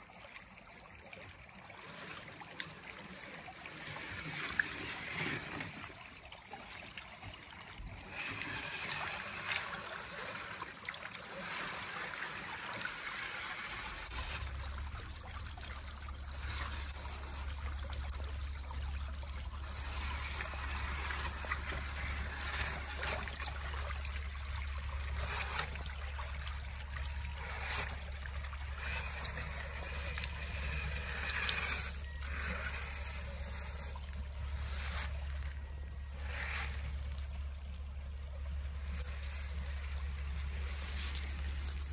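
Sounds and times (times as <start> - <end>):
creek water babbling over rocks: 0.0 - 41.9
low rumble: 14.1 - 41.9.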